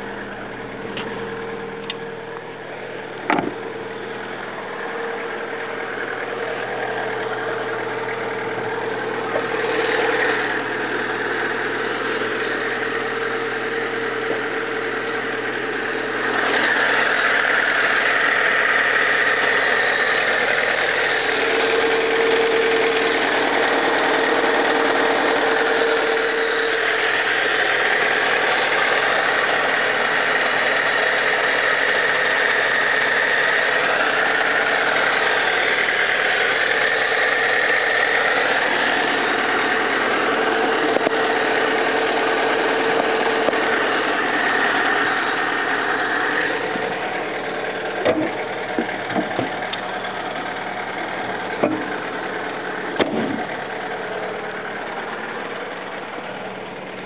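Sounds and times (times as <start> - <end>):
car engine idling: 0.0 - 57.0
short knocks: 3.2 - 3.6.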